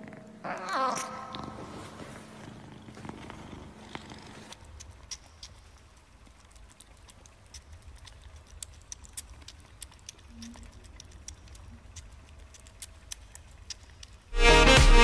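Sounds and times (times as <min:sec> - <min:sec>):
kitten lapping milk: 0:03.0 - 0:14.3.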